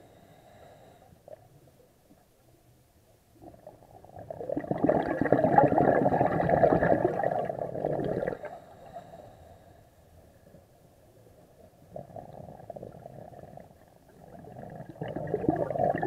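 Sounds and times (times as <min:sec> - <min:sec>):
underwater breath bubbling: 0:04.0 - 0:09.8, 0:11.9 - 0:16.0.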